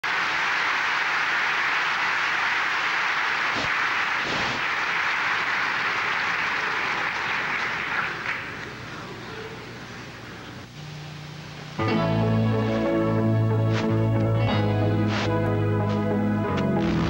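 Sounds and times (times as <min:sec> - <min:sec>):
large audience applauding: 0:00.0 - 0:09.0.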